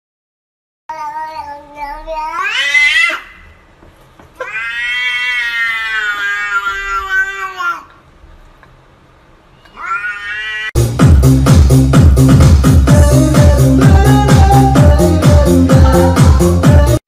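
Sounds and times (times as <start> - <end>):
cat yowling: 2.2 - 3.5, 4.4 - 7.9, 9.6 - 10.8.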